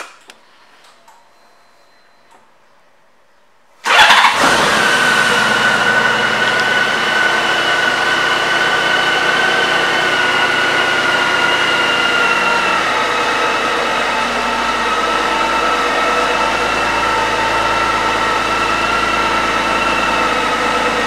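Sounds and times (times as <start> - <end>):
motorcycle engine cranking: 3.8 - 7.3.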